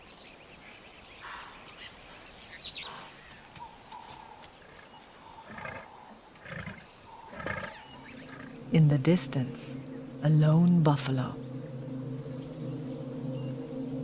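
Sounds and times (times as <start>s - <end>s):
quiet bush sounds: 0.0s - 14.0s
lions grunting: 4.0s - 8.6s.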